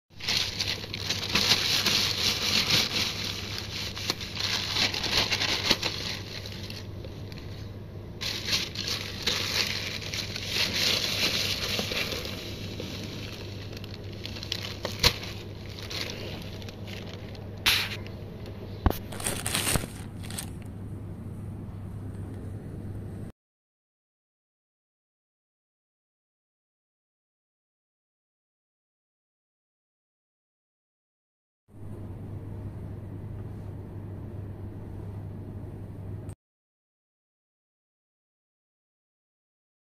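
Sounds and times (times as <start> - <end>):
plastic film crinkling: 0.2 - 7.6, 8.2 - 18.0, 18.9 - 20.7
steady low hum: 0.2 - 23.3, 31.7 - 36.4.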